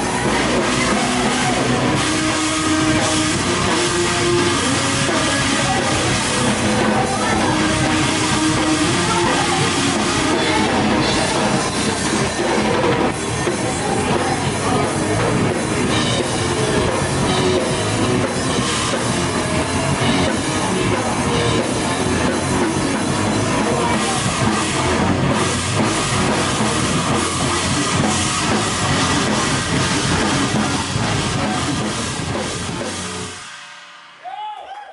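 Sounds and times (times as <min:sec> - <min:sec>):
electric guitar: 0:00.0 - 0:33.9
heavy rock band playing: 0:00.0 - 0:34.5
drum kit pounding: 0:00.0 - 0:34.9.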